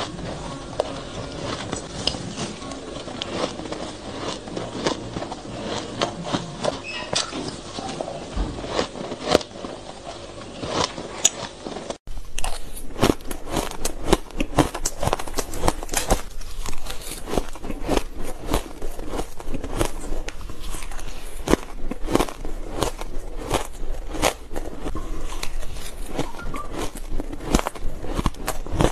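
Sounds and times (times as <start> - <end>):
crunching shaved ice: 0.0 - 28.9.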